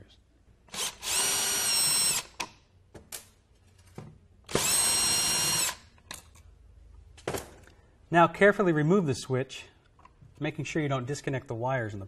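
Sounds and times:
cordless drill motor whine: 0.8s - 2.3s, 4.5s - 5.8s.

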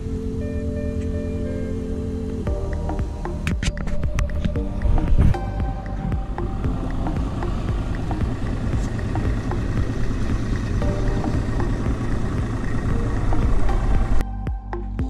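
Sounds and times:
outboard motor droning: 0.0s - 14.7s.

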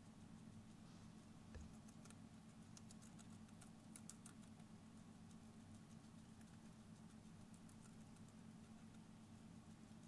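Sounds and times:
low steady hum: 0.0s - 10.0s
hamster nibbling clicks: 1.5s - 10.0s.

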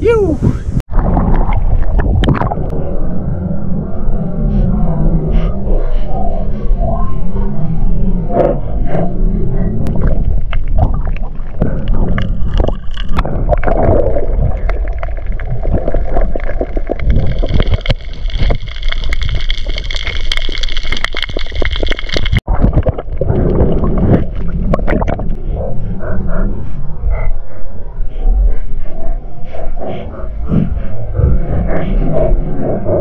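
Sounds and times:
muffled underwater water rushing: 0.6s - 33.0s
sharp underwater clicks: 9.8s - 25.4s.

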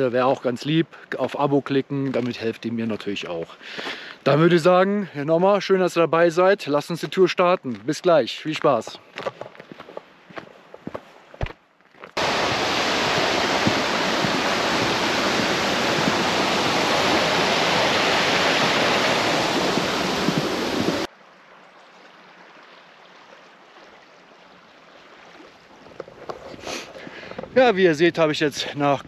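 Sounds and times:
water rushing over waterfall: 12.2s - 21.1s.

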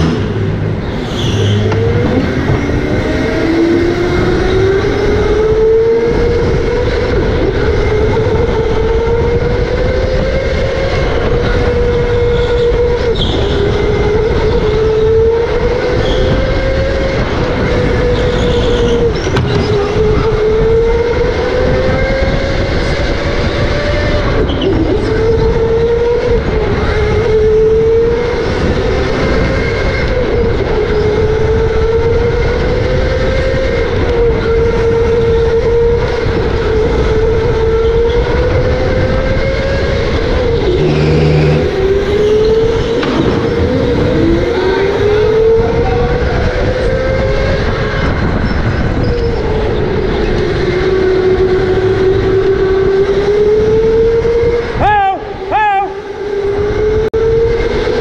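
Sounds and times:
electric motor whining: 40.3s - 46.9s.

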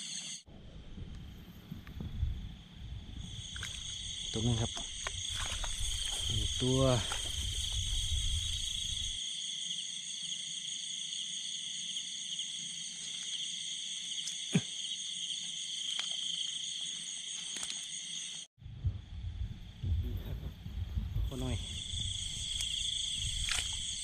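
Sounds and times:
crickets and insects trilling: 0.0s - 0.5s, 1.2s - 24.0s
low rumble: 18.6s - 23.6s.

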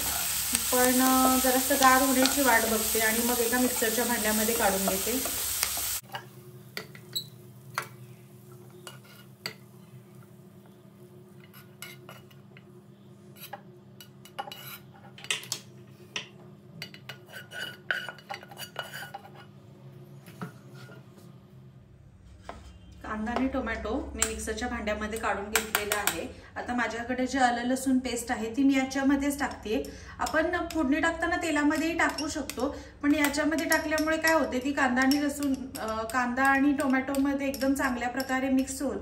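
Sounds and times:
spatula scraping and tapping pans: 0.6s - 10.4s, 11.3s - 12.7s, 13.3s - 19.6s, 20.2s - 21.3s, 25.6s - 26.2s, 31.6s - 38.8s.

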